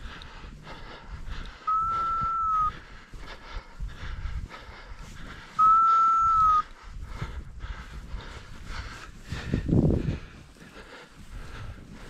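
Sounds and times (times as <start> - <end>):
high beep-like whistle: 1.7 - 2.7, 5.6 - 6.6
footsteps crunching in snow: 7.1 - 12.0.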